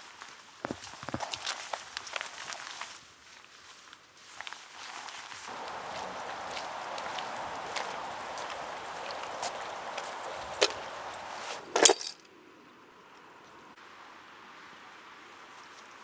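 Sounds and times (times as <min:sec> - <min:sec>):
steady outdoor hiss: 0:00.0 - 0:16.0
footsteps on wet asphalt: 0:00.2 - 0:11.8.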